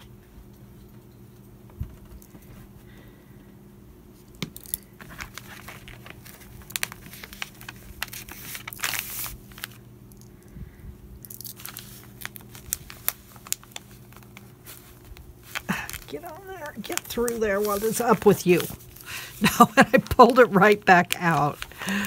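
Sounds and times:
paper rustling and crinkling: 0:05.0 - 0:09.8, 0:11.5 - 0:22.0.

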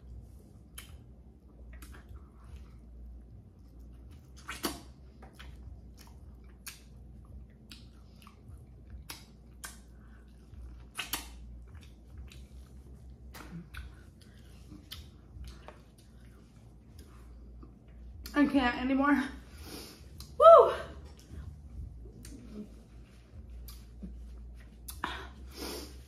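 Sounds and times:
chewing wet food: 0:00.0 - 0:18.3, 0:21.1 - 0:25.0
sharp snaps: 0:10.9 - 0:11.4.

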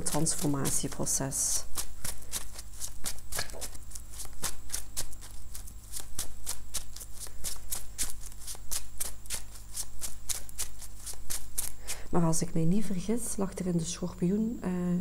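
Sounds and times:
cards being shuffled: 0:01.7 - 0:11.9.

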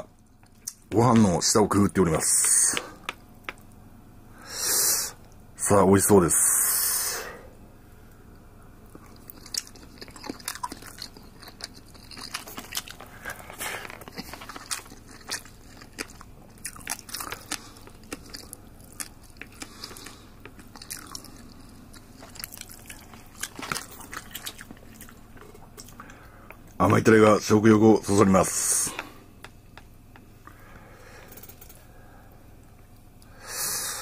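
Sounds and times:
person chewing: 0:08.8 - 0:26.8.

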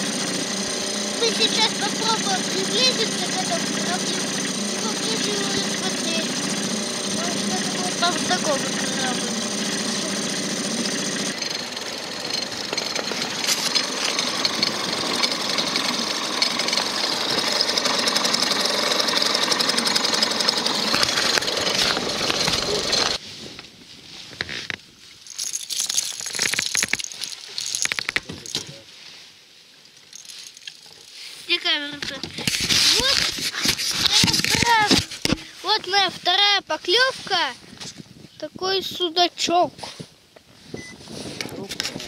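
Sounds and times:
gear clicking and knocking: 0:00.0 - 0:23.2, 0:25.3 - 0:28.8
outboard motor running: 0:00.0 - 0:23.2, 0:30.2 - 0:35.6.

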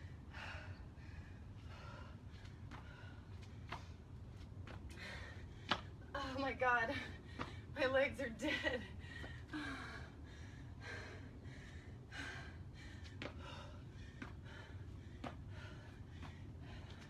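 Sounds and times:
woman breathing hard and gasping: 0:00.0 - 0:04.1, 0:04.8 - 0:06.0, 0:08.8 - 0:17.0.

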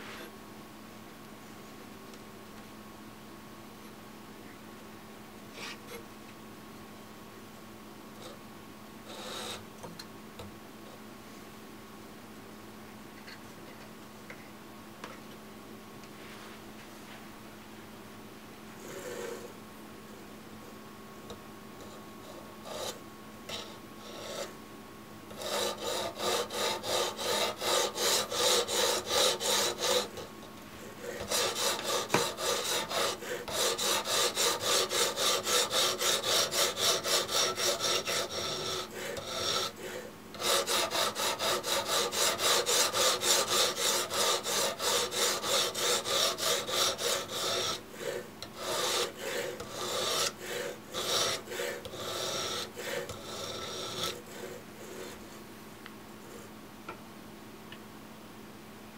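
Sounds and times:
stone rasping on knife blade: 0:09.1 - 0:09.6, 0:21.8 - 0:24.5, 0:25.3 - 0:55.2.

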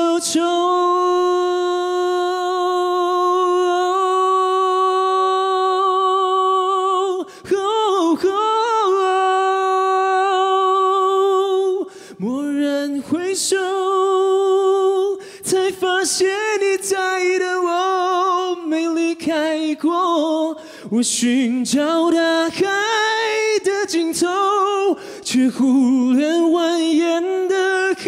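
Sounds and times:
man singing a cappella: 0:00.0 - 0:28.0.

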